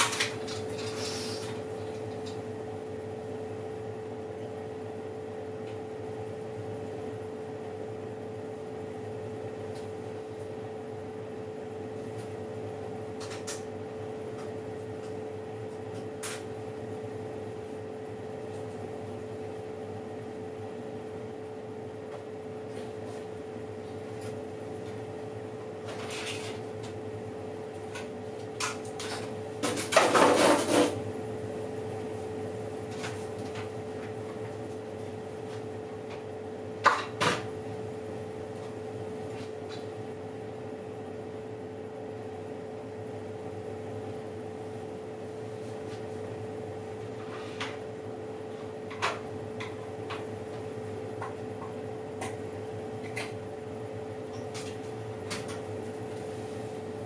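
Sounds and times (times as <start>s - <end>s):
oven humming: 0.0s - 57.0s.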